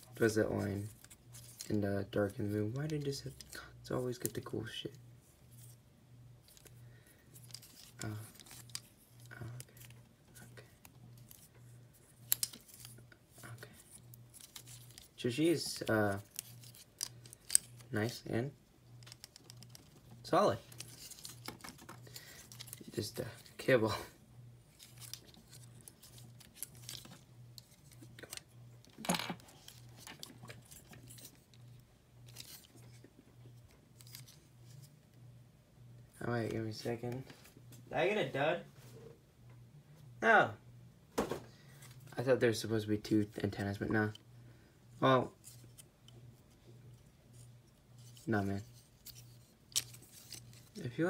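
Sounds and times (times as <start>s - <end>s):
faint pulsing low hum: 0.0s - 51.0s
plastic toy clicking and rubbing: 16.2s - 17.9s, 19.0s - 23.0s.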